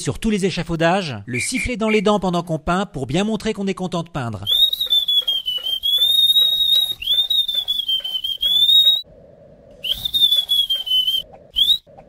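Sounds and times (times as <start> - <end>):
man whistling a tune: 1.3 - 2.1, 4.5 - 9.0, 9.8 - 11.9.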